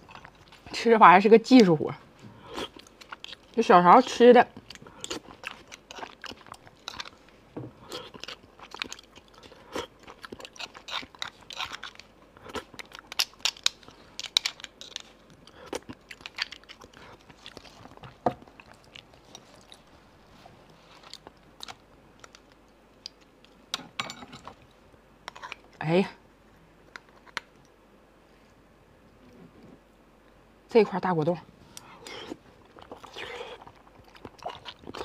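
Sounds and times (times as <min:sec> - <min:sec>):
chewing and mouth smacks: 0:02.5 - 0:03.6, 0:04.5 - 0:19.9, 0:31.8 - 0:35.0.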